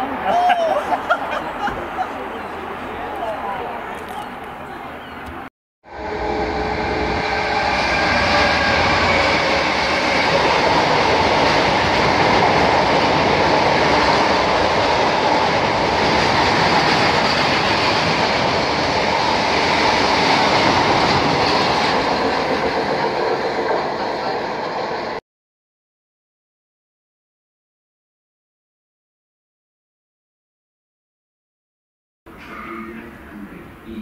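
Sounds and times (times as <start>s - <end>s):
diesel locomotive engine: 0.0s - 25.2s.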